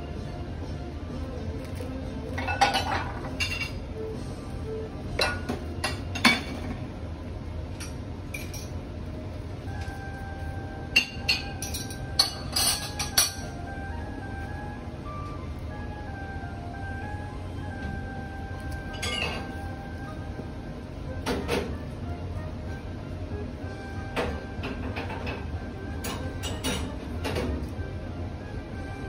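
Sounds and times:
steady low hum: 0.0s - 29.0s
dishes and utensils clinking: 1.7s - 4.1s, 5.1s - 6.9s, 7.7s - 8.8s, 10.9s - 13.6s, 18.8s - 19.7s, 21.2s - 21.8s, 24.0s - 27.7s
music with held tones: 9.0s - 29.0s.

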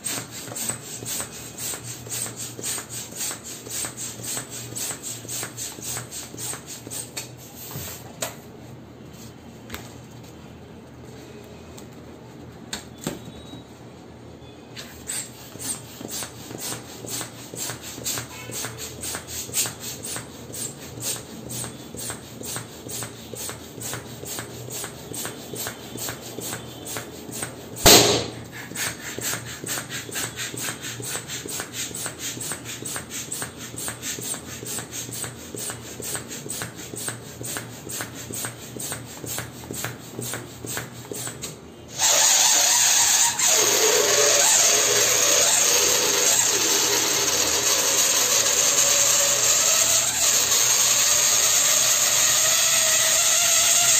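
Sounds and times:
balloon popping: 27.8s - 28.6s, 42.1s - 53.9s
loud machine noise: 41.9s - 53.9s.

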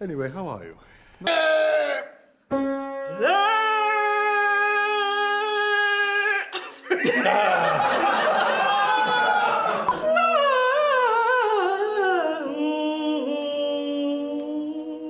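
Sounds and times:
sustained musical tone: 2.5s - 3.3s
person singing with vibrato: 3.0s - 6.6s, 9.9s - 15.0s.

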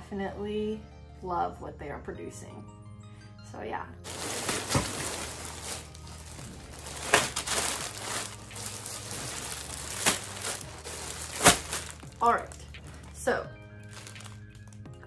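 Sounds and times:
plastic packaging crinkling: 4.1s - 13.0s, 13.8s - 14.8s.

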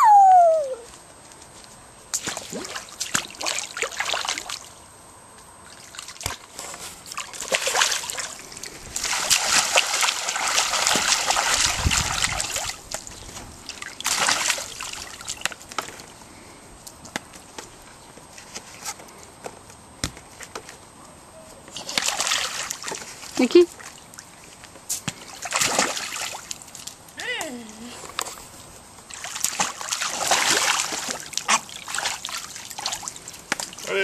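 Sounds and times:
toddler splashing in water: 13.9s - 15.4s, 21.8s - 24.0s, 29.1s - 34.0s.

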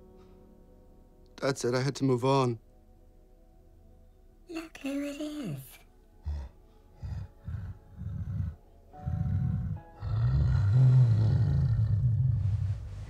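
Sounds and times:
music: 0.0s - 13.0s
creature deep rumbling call: 6.2s - 12.4s.

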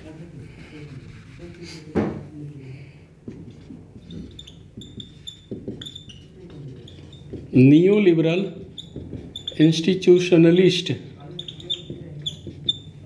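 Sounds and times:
marker squeaking on whiteboard: 3.3s - 13.0s.

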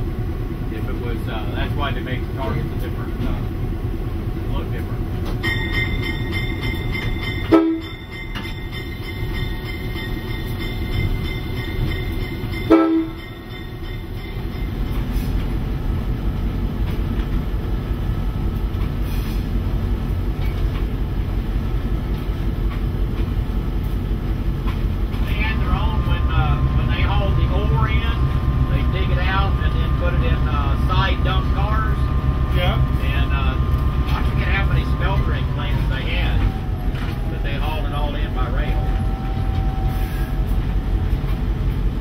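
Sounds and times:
diesel locomotive rumbling: 0.0s - 42.0s
steady tone: 25.2s - 40.0s.

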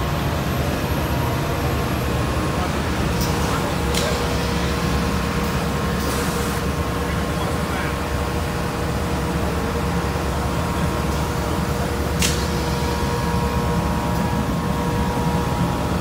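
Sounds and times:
constant hum: 0.0s - 16.0s
heavy machinery drone: 0.0s - 16.0s
short sharp click: 12.2s - 12.5s.

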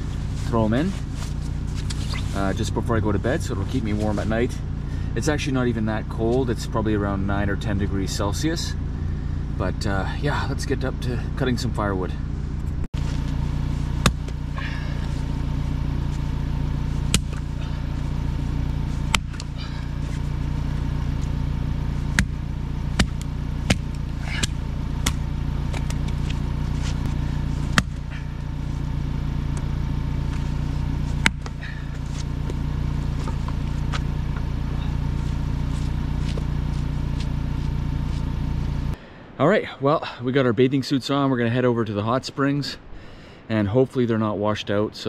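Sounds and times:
low motor hum: 0.0s - 39.4s
hatchet splitting wood: 14.0s - 14.5s, 22.1s - 26.4s, 27.7s - 28.3s, 31.2s - 32.6s.

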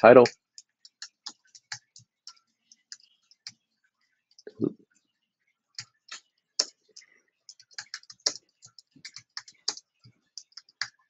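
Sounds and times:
computer keyboard typing: 0.2s - 3.6s, 5.8s - 11.0s.

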